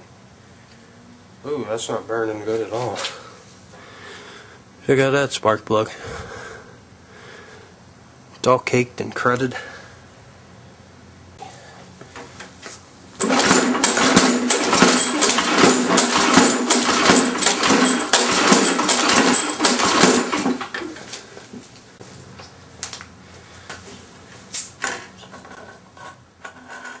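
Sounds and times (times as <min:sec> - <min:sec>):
rapid clatter: 0:13.2 - 0:20.9
lawn mower engine cranking: 0:13.2 - 0:21.3.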